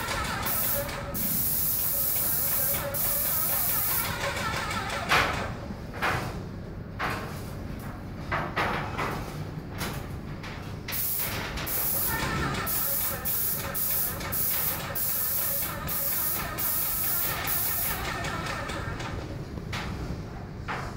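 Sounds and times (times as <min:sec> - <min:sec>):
paint sprayer gun hissing: 0:00.0 - 0:04.4, 0:11.0 - 0:18.8.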